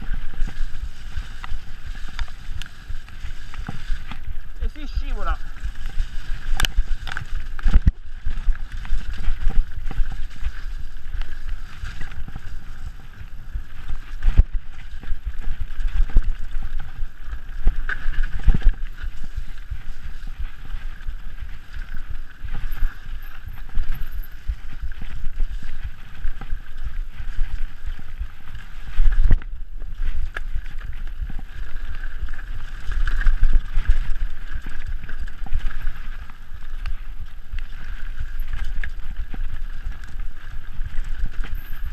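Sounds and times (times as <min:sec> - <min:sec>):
bike knocking and rattling: 0:00.0 - 0:41.9
wind buffeting microphone: 0:01.7 - 0:25.8.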